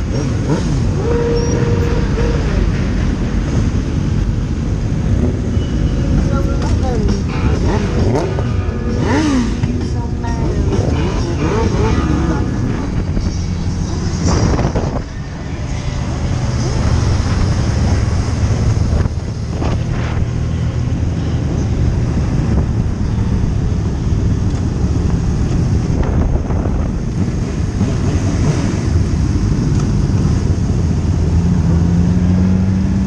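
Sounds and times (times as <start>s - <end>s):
motorcycle engine: 0.0s - 33.0s
wind noise on microphone: 10.6s - 33.0s.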